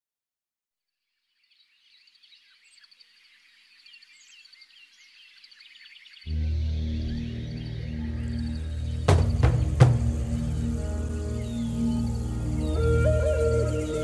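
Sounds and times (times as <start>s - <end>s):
small birds chirping: 1.1s - 14.0s
music with deep bass: 6.3s - 14.0s.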